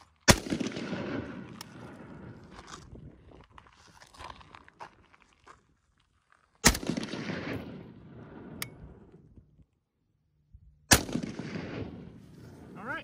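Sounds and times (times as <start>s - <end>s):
rifle shots with rolling echo: 0.2s - 2.5s, 6.6s - 9.4s, 10.9s - 13.0s.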